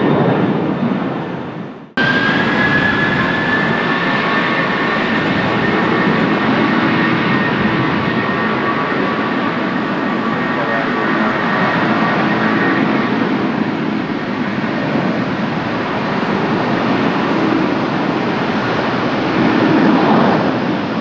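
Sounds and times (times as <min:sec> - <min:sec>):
jet engines roaring: 0:00.0 - 0:21.0.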